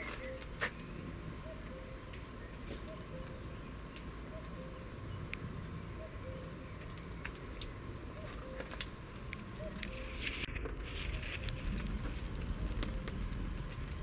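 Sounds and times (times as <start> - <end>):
insects chirping: 1.5 - 10.4.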